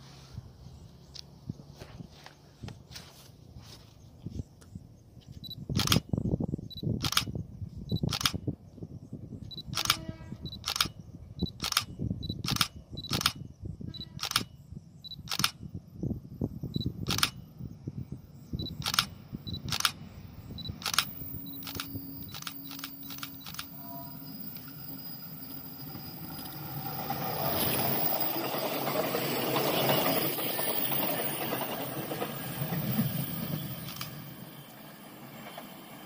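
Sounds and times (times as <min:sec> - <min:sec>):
wind rumble on microphone: 0:00.2 - 0:24.0
sharp clicks: 0:05.7 - 0:06.0, 0:07.0 - 0:07.3, 0:08.0 - 0:08.4, 0:09.6 - 0:13.4, 0:14.2 - 0:14.5, 0:15.1 - 0:15.6, 0:17.0 - 0:17.4, 0:18.6 - 0:20.0, 0:20.6 - 0:23.7
distant diesel railcar hum: 0:08.5 - 0:36.0.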